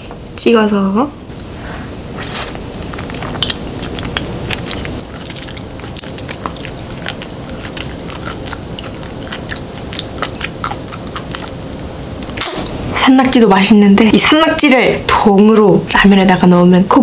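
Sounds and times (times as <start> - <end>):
person sucking food through lips: 2.1 - 11.7, 12.3 - 12.8
person chewing with wet clicks: 2.5 - 12.8.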